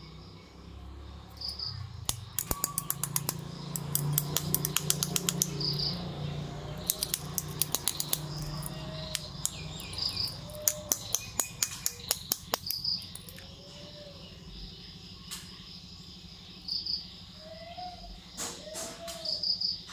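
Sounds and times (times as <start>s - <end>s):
plastic toy parts clicking: 2.0s - 5.7s, 6.8s - 13.4s.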